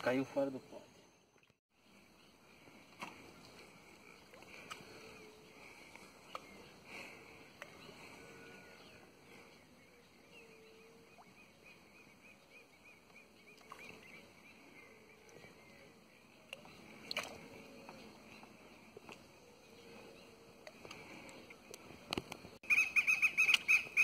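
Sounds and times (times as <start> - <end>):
bird chirping: 22.6 - 24.0.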